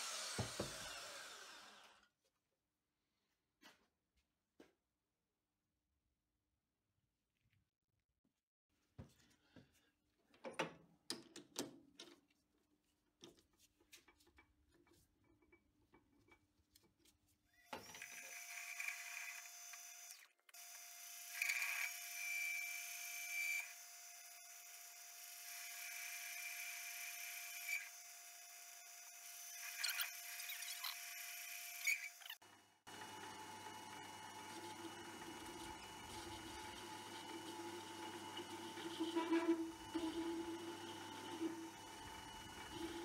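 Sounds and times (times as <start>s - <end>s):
lathe tool squealing on metal: 29.6s - 32.4s, 38.6s - 40.6s
metal lathe whine: 32.9s - 43.0s.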